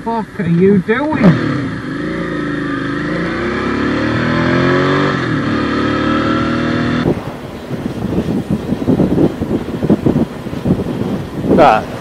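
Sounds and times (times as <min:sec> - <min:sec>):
motorcycle engine accelerating: 0:01.1 - 0:12.0
wind noise on microphone: 0:04.2 - 0:12.0.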